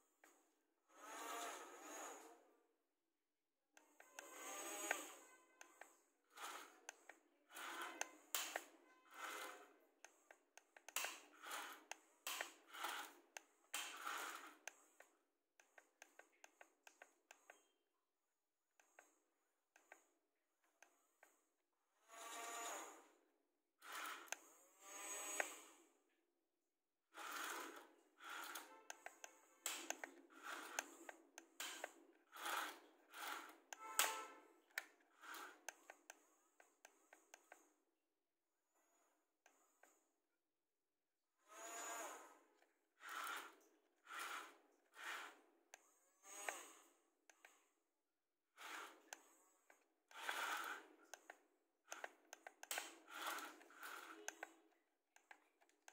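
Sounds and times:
toy gear motors whirring: 0.9s - 2.3s, 3.8s - 17.6s, 18.8s - 23.2s, 23.8s - 25.9s, 27.1s - 37.8s, 41.4s - 47.7s, 48.6s - 55.9s
sharp plastic clicks: 3.8s - 17.7s, 27.2s - 37.6s, 48.6s - 55.9s.

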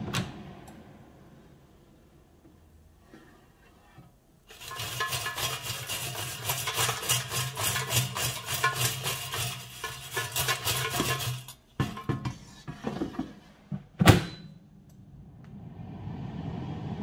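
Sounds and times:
frozen chips rattling in basket: 4.5s - 11.6s.

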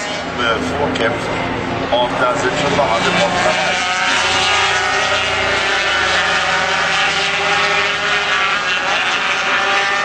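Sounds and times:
racing motorcycles at high revs: 2.3s - 10.0s.

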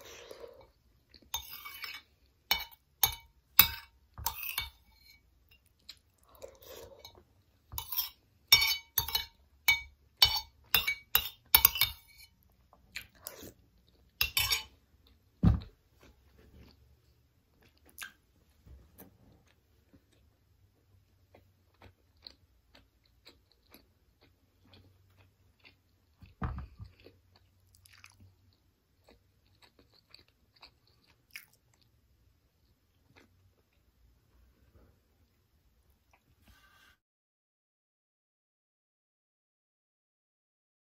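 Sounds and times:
metal spoon clinking on bowl: 1.3s - 5.7s, 7.8s - 12.3s, 14.2s - 14.8s
chewing and mouth sounds: 19.4s - 32.0s, 32.6s - 33.9s.

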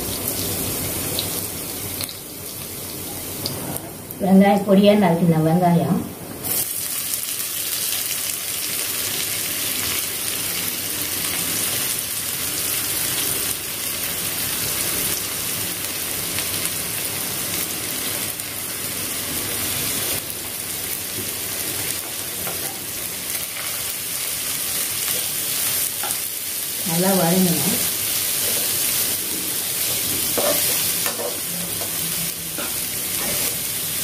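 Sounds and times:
garlic sizzling in oil: 0.0s - 4.2s, 6.4s - 34.0s.

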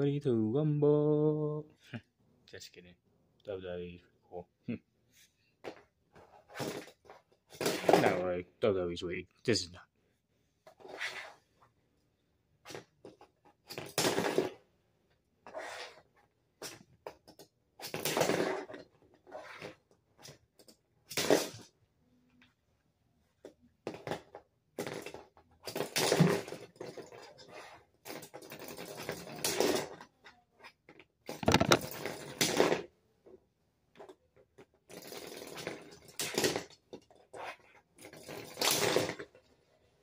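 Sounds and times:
plastic spinning tops rattling: 31.3s - 32.2s.

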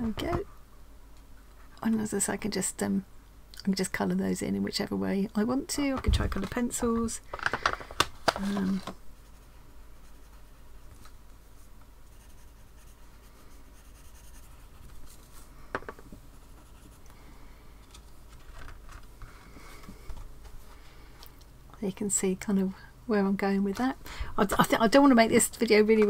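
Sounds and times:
pencils scratching on card: 12.1s - 15.3s.

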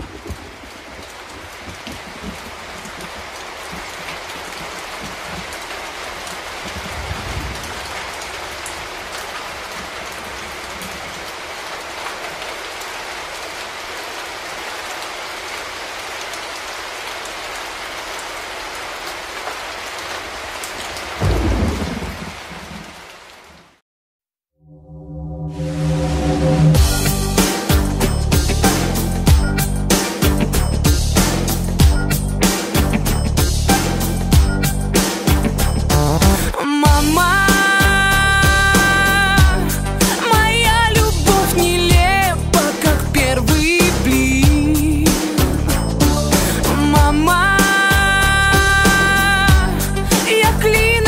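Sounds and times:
heavy rain: 0.0s - 23.8s, 25.7s - 51.0s
rolling thunder: 6.6s - 8.1s, 21.2s - 23.0s.

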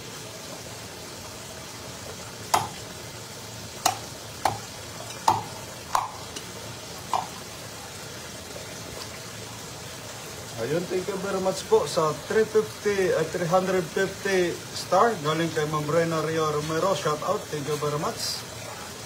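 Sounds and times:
tap water running into basin: 0.0s - 19.0s
sharp ringing knocks: 2.5s - 2.8s, 3.8s - 6.2s.

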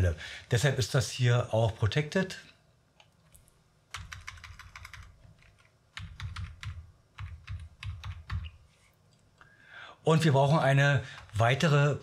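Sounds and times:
keyboard typing: 3.0s - 8.6s.

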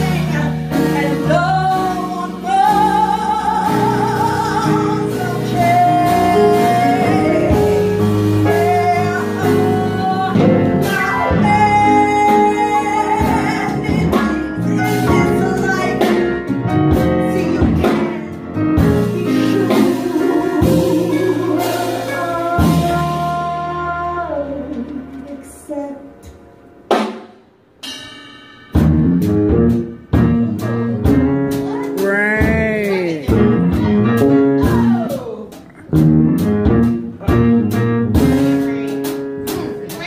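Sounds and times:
woman singing: 0.0s - 26.4s
jazz band playing: 0.0s - 40.0s.

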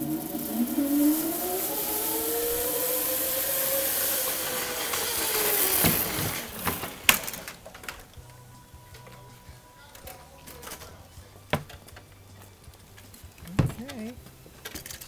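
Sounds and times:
zipline pulleys whining: 0.0s - 8.8s.

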